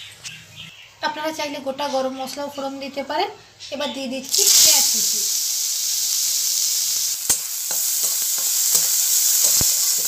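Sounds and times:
onions sizzling in hot oil: 0:04.3 - 0:10.0.

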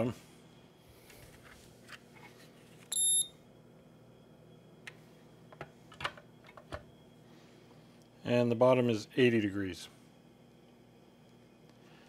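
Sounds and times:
faint steady hum: 0:00.0 - 0:12.0
thermometer electronic beep: 0:02.9 - 0:03.3.

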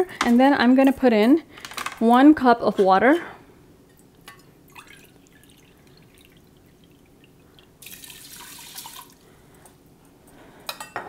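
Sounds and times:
water pouring into a pot: 0:04.7 - 0:09.3.

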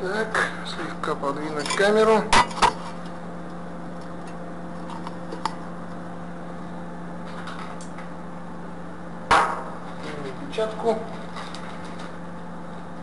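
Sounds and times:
loud sharp knock: 0:09.3 - 0:09.8.

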